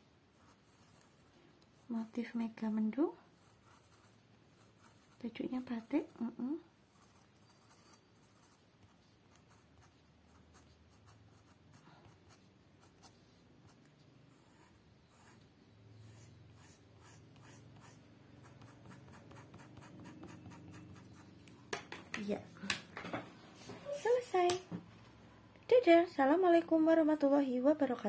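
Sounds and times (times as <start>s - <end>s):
crayon scratching on paper: 0.4s - 2.0s, 3.3s - 21.4s.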